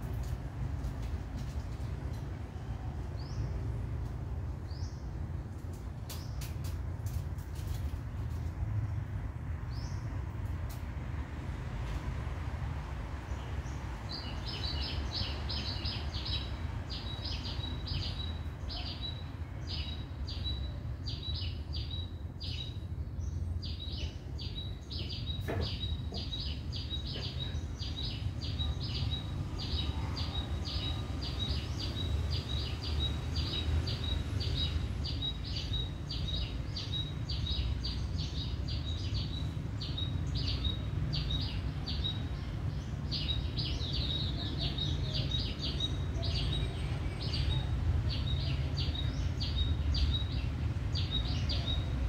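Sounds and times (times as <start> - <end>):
bird chirping: 13.3 - 52.0.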